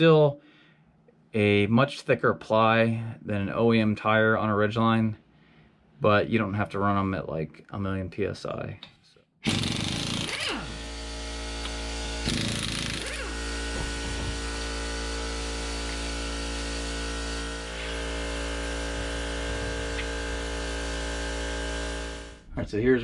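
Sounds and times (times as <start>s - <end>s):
steady machine hum: 9.5s - 23.0s.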